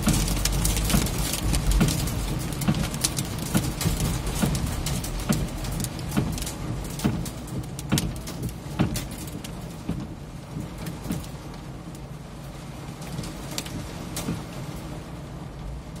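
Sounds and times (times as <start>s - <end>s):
heavy hail impacts knocking: 0.0s - 11.4s
hail pattering on vehicle roof: 0.0s - 16.0s.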